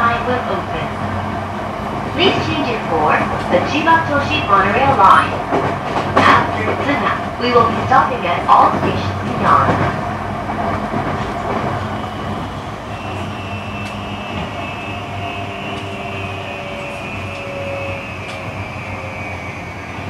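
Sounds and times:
train wheels rumbling on rails: 0:00.0 - 0:20.0
traction motor whine: 0:11.8 - 0:20.0.

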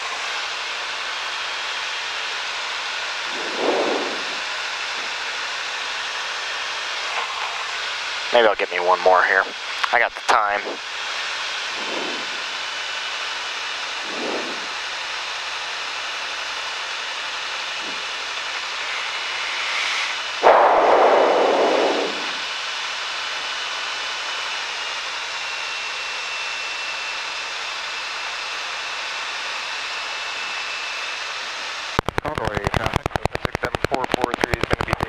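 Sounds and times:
aircraft cabin engine noise: 0:00.0 - 0:23.2, 0:31.8 - 0:35.0
loud rush of air: 0:03.2 - 0:05.3, 0:11.6 - 0:12.8, 0:14.0 - 0:15.0, 0:17.8 - 0:22.5.

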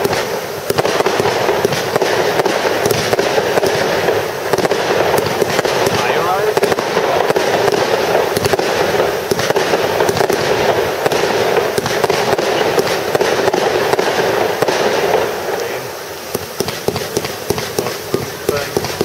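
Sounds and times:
fireworks pops and bangs: 0:00.0 - 0:19.0.

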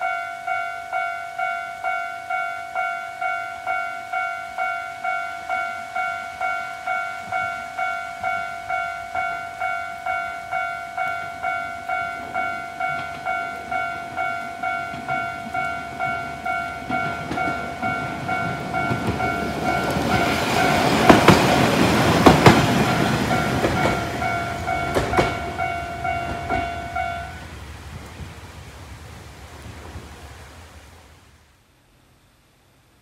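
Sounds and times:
level crossing alarm ringing: 0:00.0 - 0:27.4
train rumble: 0:03.2 - 0:31.6
wheel clacks over rail joints: 0:12.2 - 0:27.2.

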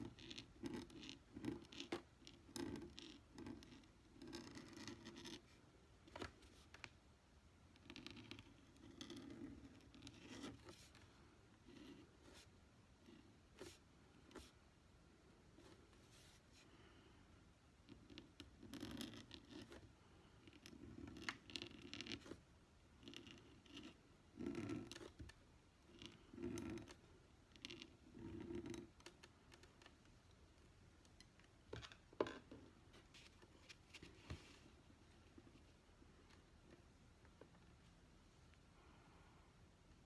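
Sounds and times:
pen nib scratching on paper: 0:00.0 - 0:05.6, 0:17.9 - 0:22.4, 0:23.0 - 0:25.3, 0:25.9 - 0:29.8.

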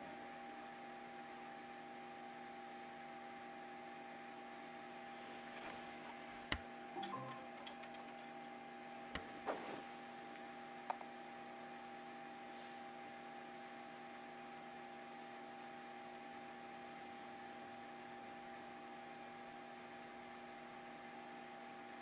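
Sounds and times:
low electrical hum: 0:00.0 - 0:22.0
handling rustles: 0:05.0 - 0:06.5.

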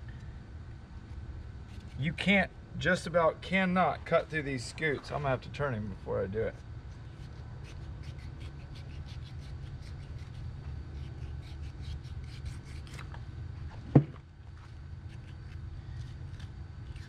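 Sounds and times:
knife scraping through scales: 0:01.7 - 0:02.1, 0:06.9 - 0:13.1.

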